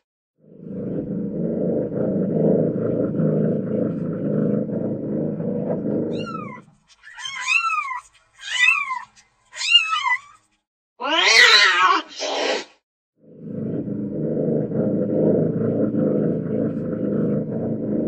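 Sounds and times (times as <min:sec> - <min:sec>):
cat meowing: 0:11.0 - 0:12.2.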